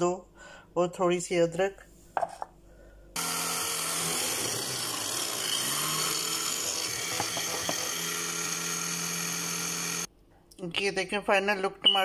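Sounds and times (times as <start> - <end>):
electric chopper motor hum: 3.2 - 10.1
blades chopping vegetables: 5.6 - 10.1.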